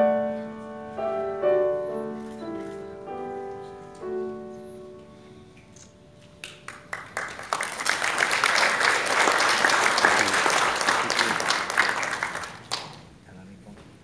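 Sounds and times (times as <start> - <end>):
audience applauding: 6.4 - 13.2.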